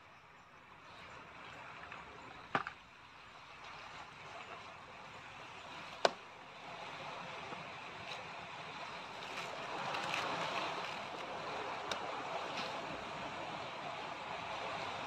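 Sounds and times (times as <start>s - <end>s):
sea surf: 3.2s - 15.0s.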